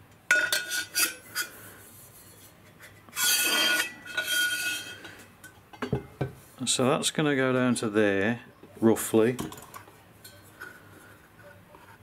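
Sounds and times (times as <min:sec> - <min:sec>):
metal scraping on copper pipe: 0:00.3 - 0:05.6.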